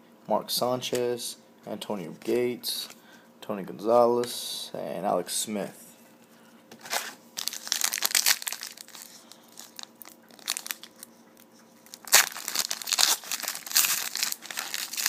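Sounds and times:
foil wrapper crinkling and tearing: 0:06.9 - 0:11.1, 0:11.8 - 0:15.0.

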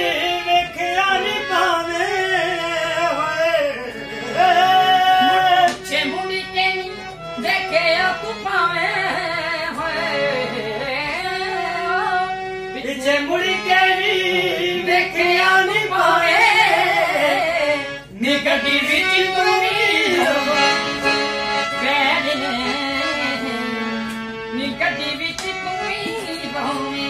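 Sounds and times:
men singing: 0:00.0 - 0:06.2, 0:12.8 - 0:21.2
harmonium playing chords: 0:00.0 - 0:27.0.

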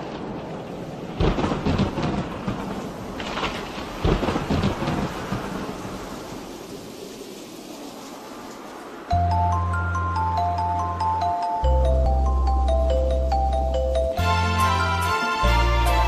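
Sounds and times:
low rumbles of thunder: 0:00.0 - 0:09.0
steady rain: 0:00.0 - 0:16.0.

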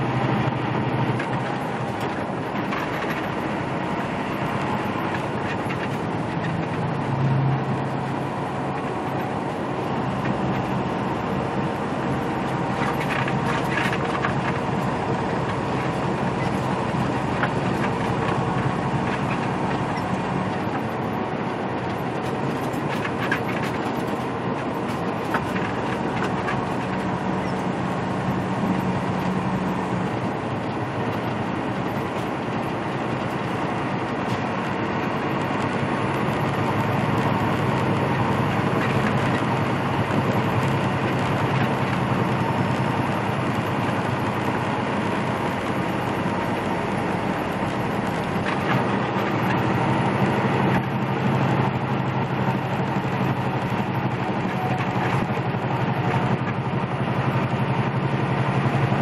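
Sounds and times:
truck engine drone: 0:00.0 - 0:59.0
tyre and road noise: 0:00.0 - 0:59.0.

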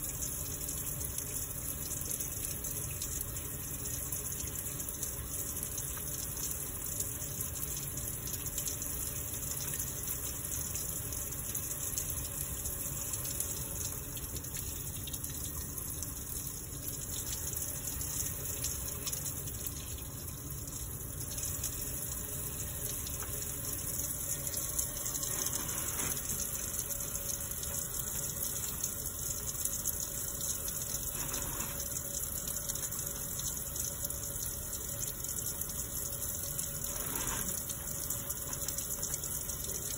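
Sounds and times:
tap water running into sink: 0:00.0 - 0:39.9
hands washing under water: 0:17.0 - 0:32.2.

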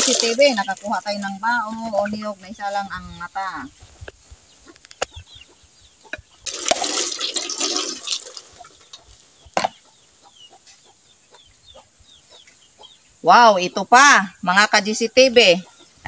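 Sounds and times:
coconut water gushing and splashing: 0:00.0 - 0:01.4, 0:06.4 - 0:08.7.

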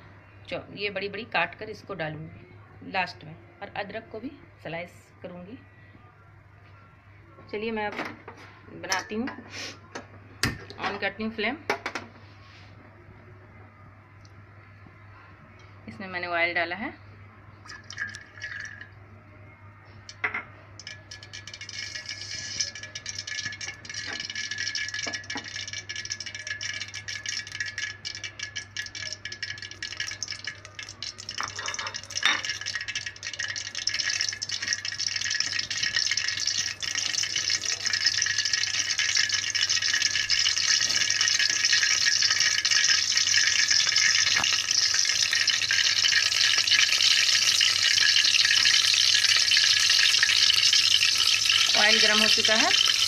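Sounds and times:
oil crackling and sizzling: 0:17.6 - 0:19.0, 0:20.1 - 0:53.0.

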